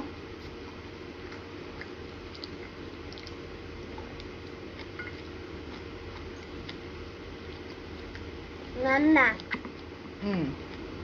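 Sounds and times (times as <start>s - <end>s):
low room hum: 0.0s - 11.0s
toddler eating wet sounds: 7.4s - 11.0s.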